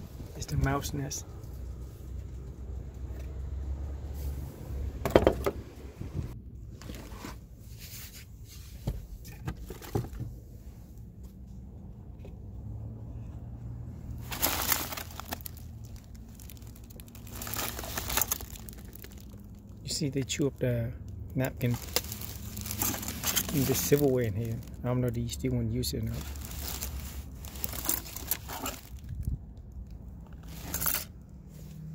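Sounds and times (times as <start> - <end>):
paper and plastic rustling: 14.2 - 20.4, 21.5 - 24.9, 25.9 - 29.4, 30.4 - 31.1.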